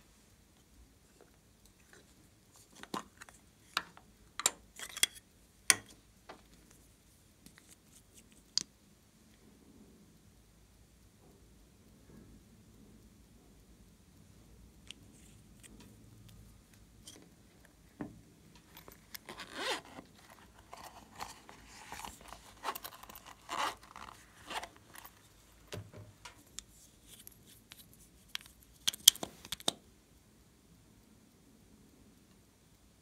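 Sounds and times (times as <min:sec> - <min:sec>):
plastic items rasping and scraping: 0:19.3 - 0:25.3.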